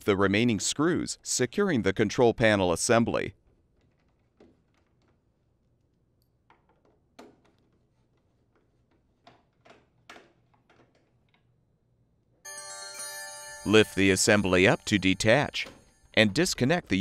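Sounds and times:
electronic chime tones: 12.5s - 16.4s.

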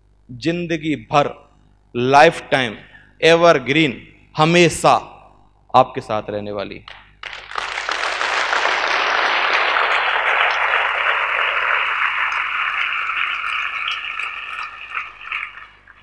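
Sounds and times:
audience applauding: 6.9s - 16.0s.

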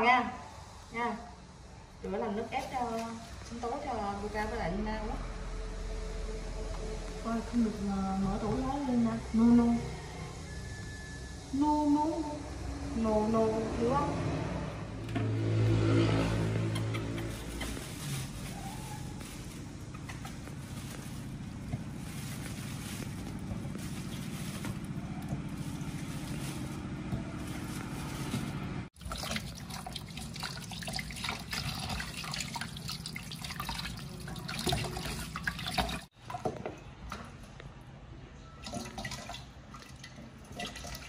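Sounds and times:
water splashing in metal bowl: 29.0s - 36.5s, 38.6s - 41.0s.

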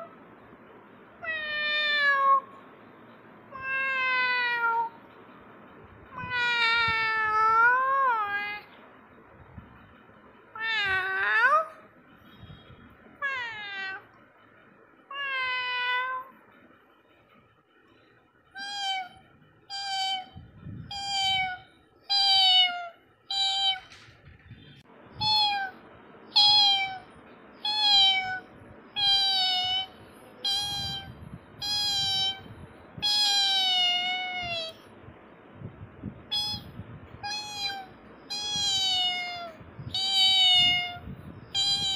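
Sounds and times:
cat meowing: 1.2s - 2.5s, 3.5s - 5.0s, 6.1s - 8.7s, 10.5s - 11.9s, 13.2s - 14.2s, 15.1s - 16.4s, 18.6s - 24.0s, 25.2s - 34.9s, 36.3s - 41.9s.

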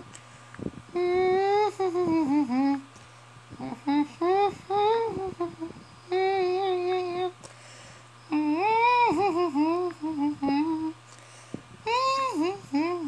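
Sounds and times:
person humming: 0.9s - 2.9s, 3.5s - 7.6s, 8.3s - 11.2s, 11.8s - 13.0s.

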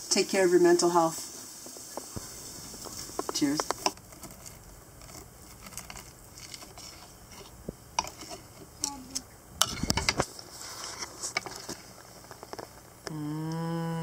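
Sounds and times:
cutlery scraping on a plate: 5.7s - 8.6s, 9.6s - 11.8s.

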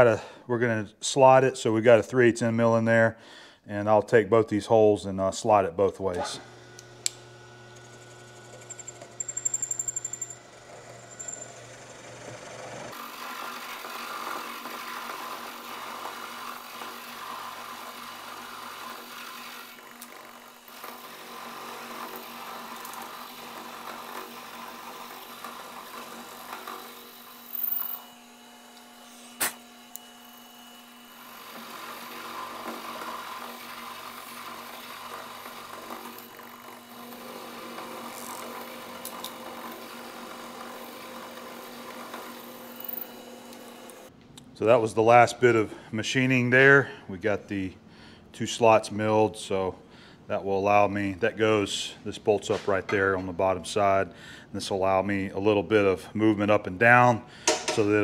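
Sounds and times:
milling machine cutting metal: 6.2s - 44.1s.

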